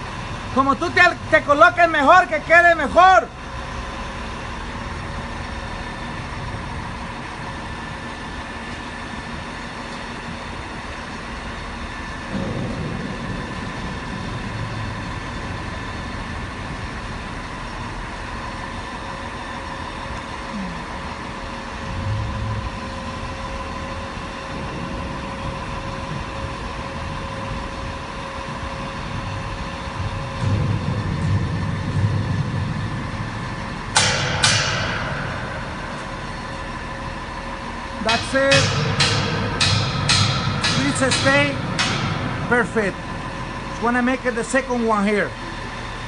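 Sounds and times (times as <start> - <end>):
truck engine running: 0.0 - 46.0
faint whine: 11.1 - 46.0.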